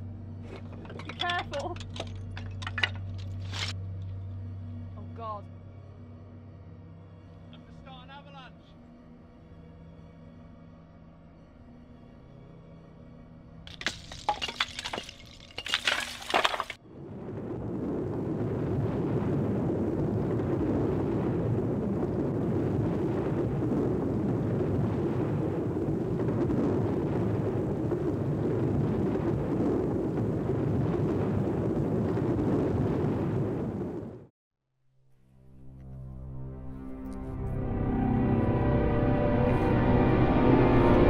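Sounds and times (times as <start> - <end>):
slate cracking and clattering: 0.4 - 3.8, 13.7 - 16.8
rockfall rumbling down scree: 13.7 - 16.8.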